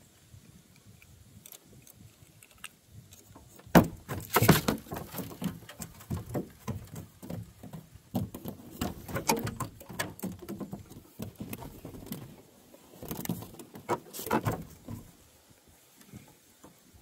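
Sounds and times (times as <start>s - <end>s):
handling rustles and scrapes: 8.2s - 16.6s.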